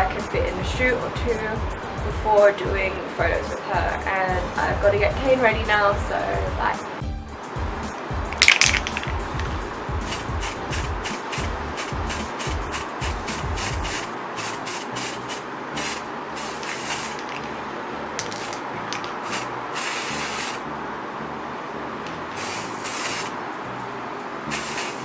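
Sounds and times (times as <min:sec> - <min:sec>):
music with bass beat: 0:00.0 - 0:14.1
aerosol spray can hissing: 0:10.0 - 0:17.5, 0:18.3 - 0:20.6, 0:22.3 - 0:23.4, 0:24.5 - 0:25.0.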